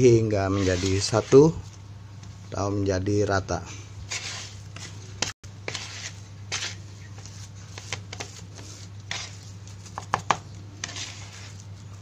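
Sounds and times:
plastic spatula scraping bowl: 0.4 - 1.7, 4.1 - 9.5, 10.8 - 11.7.

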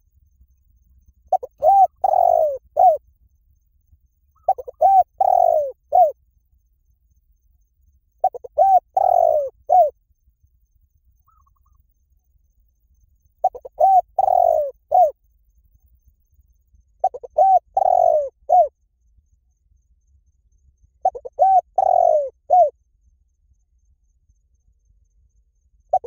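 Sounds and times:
dove cooing: 1.3 - 3.0, 4.4 - 6.2, 8.2 - 10.0, 13.4 - 15.2, 17.0 - 18.7, 21.0 - 22.7.

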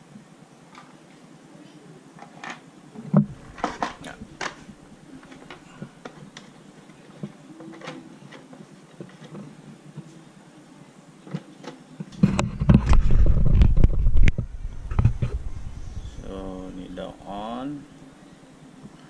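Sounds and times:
clicks and knocks: 3.2 - 6.5.

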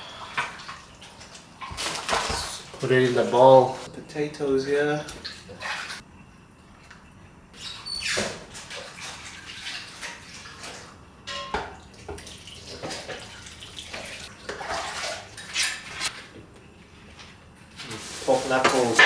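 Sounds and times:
stew sloshing and splashing: 8.2 - 11.0, 11.8 - 15.9
metal ladle clinks: 11.3 - 11.7.

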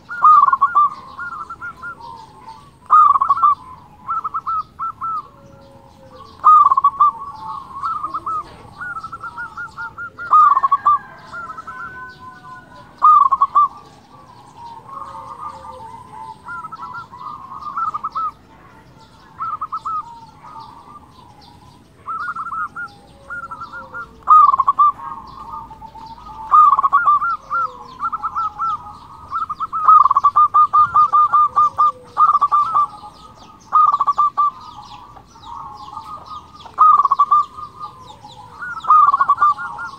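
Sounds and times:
dove cooing: 0.0 - 39.9.

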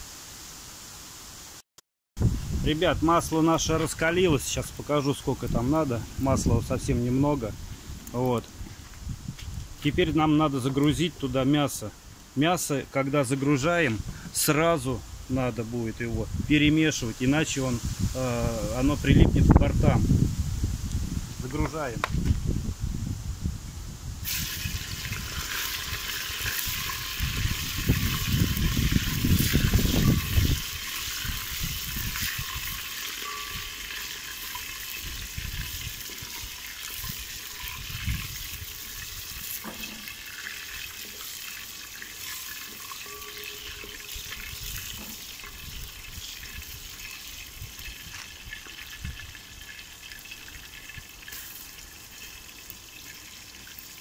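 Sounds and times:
meat sizzling in oil: 24.2 - 54.0.

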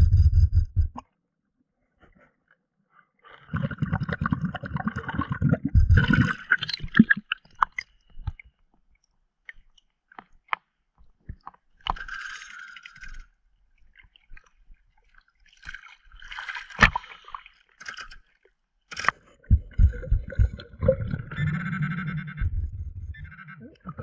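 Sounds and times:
muffled underwater thumps: 0.0 - 1.0, 5.6 - 6.2, 19.4 - 21.3, 22.4 - 23.2
water sloshing and splashing: 3.6 - 21.6.

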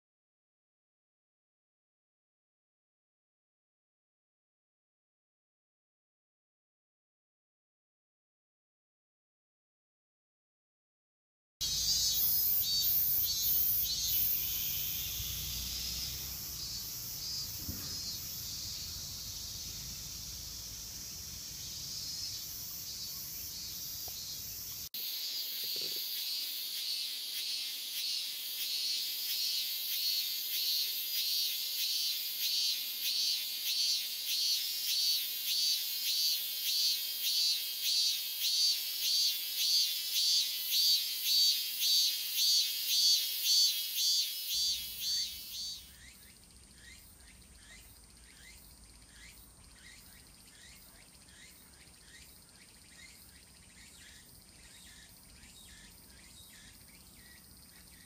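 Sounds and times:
cicada chorus: 11.6 - 58.0
single cicada pulsing call: 11.6 - 58.0.

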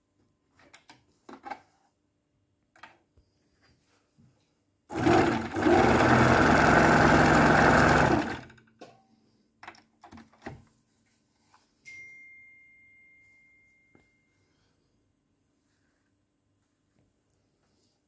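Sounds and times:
sewing machine stitching: 4.9 - 8.6
high steady ringing tone: 11.8 - 14.7.

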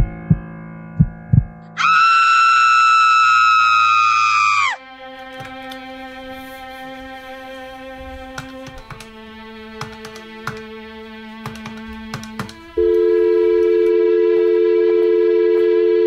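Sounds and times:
low thuds: 0.0 - 1.7
woman screaming: 1.8 - 4.8
sustained music notes: 4.8 - 16.0.

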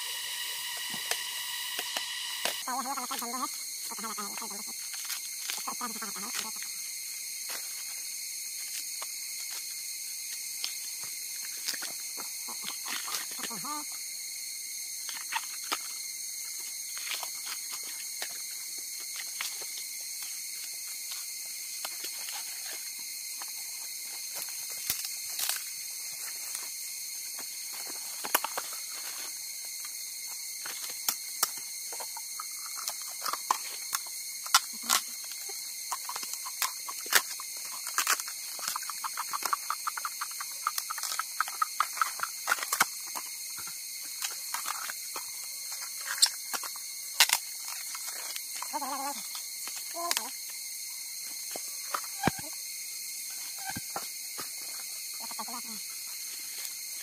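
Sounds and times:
high-pitched insect drone: 0.0 - 57.0
bamboo shoots snapping and peeling: 4.3 - 6.7, 8.6 - 13.6, 15.0 - 16.0, 16.6 - 26.6, 27.8 - 29.1, 30.6 - 50.6.

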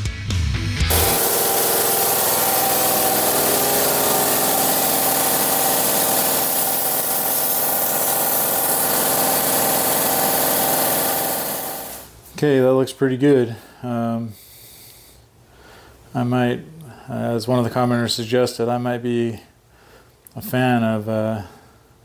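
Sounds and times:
machine motor humming: 0.9 - 12.1.

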